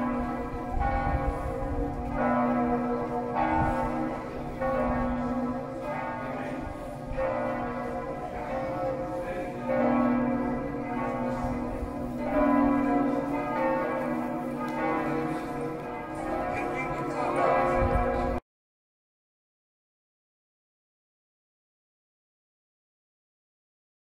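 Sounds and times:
church bells ringing: 0.0s - 18.4s.

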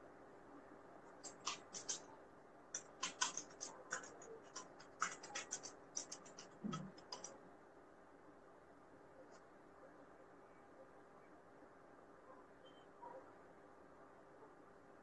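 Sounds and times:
faint irregular clicks: 1.2s - 2.0s, 2.7s - 7.4s.

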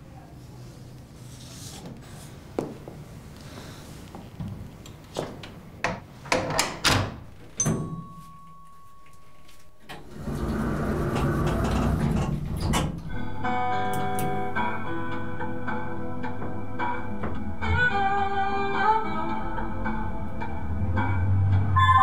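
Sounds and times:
music with plucked strings: 13.1s - 21.6s.

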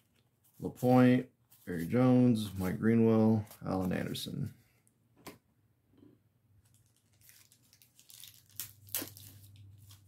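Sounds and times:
sharp wrapper crackles: 6.6s - 10.0s
wrapper crinkling and rustling: 6.6s - 10.0s.

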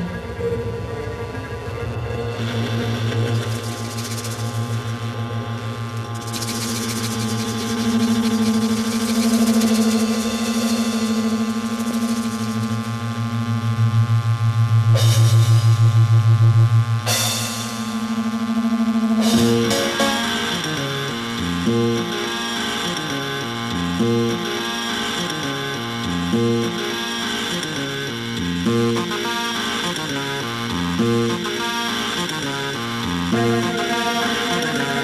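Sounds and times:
pulsing low drone: 0.0s - 35.0s
stepping bass line: 19.0s - 31.7s.

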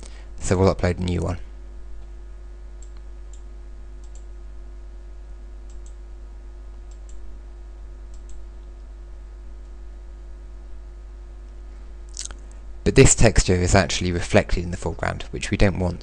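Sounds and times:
low electrical hum: 0.0s - 16.0s
computer mouse clicks: 2.8s - 4.3s, 5.7s - 6.0s, 6.9s - 7.2s, 8.1s - 8.7s.

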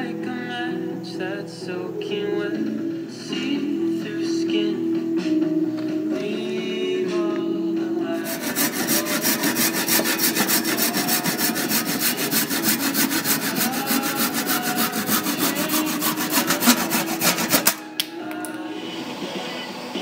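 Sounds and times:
scraping strokes on wood: 8.1s - 17.9s.

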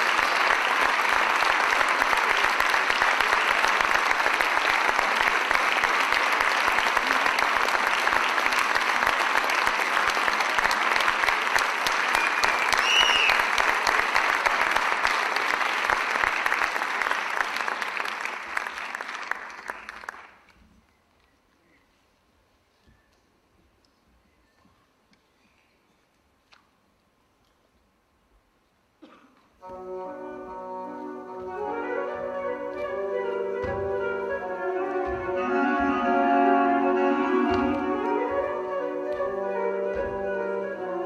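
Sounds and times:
audience applauding: 0.0s - 20.6s.

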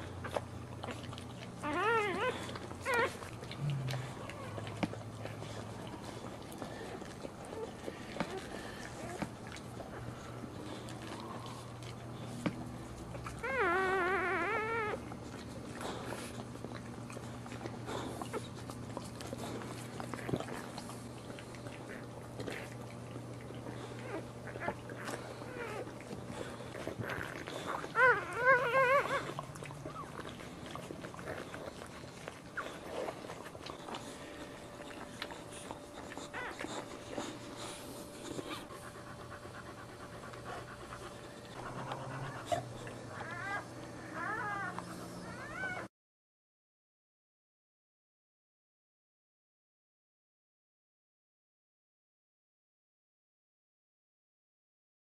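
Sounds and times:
steady low hum: 0.0s - 45.9s
dog licking: 0.1s - 13.5s, 15.0s - 44.8s
puppies squeaking: 0.2s - 9.2s, 13.3s - 15.1s, 23.7s - 45.9s
puppy crying in high squeaks: 1.6s - 3.1s.

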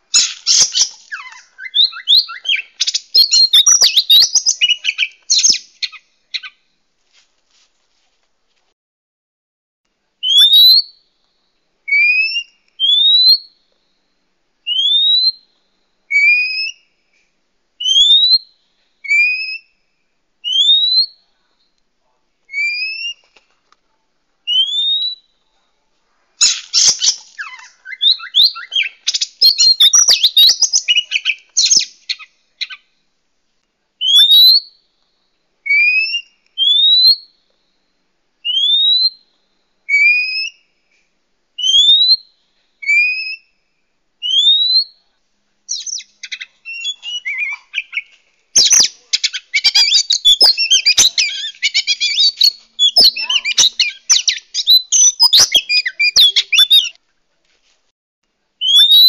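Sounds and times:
bird warbling: 0.2s - 5.6s.

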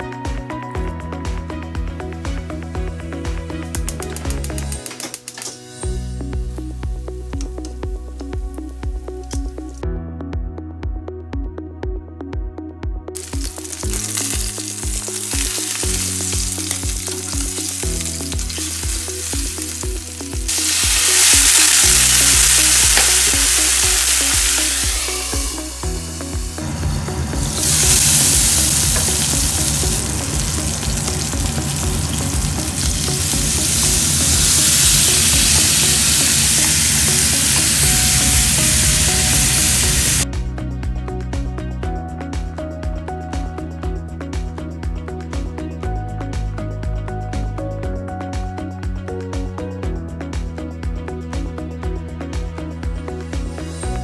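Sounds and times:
background music with steady beat: 0.0s - 54.0s
meat sizzling in a frying pan: 13.2s - 26.6s, 27.5s - 40.2s.

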